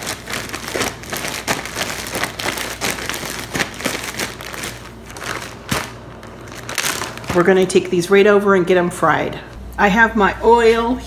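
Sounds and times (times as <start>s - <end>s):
plastic bag crinkling and rustling: 0.0s - 7.9s.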